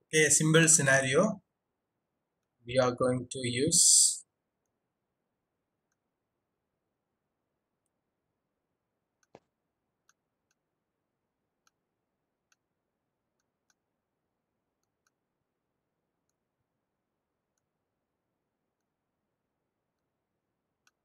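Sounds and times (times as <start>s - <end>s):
computer mouse clicks: 9.2s - 10.7s, 11.6s - 12.7s, 13.3s - 13.9s, 14.8s - 15.2s, 20.8s - 21.0s.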